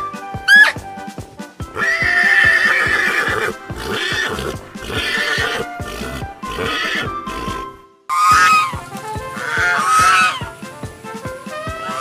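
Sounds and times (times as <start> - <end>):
background music with steady beat: 0.0 - 12.0
horse neighing: 1.7 - 10.6, 11.6 - 12.0.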